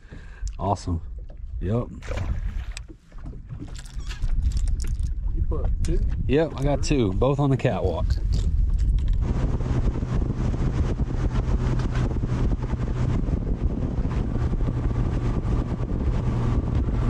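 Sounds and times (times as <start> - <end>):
outboard motor running: 1.1 - 17.0
wind rushing over microphone: 3.4 - 17.0.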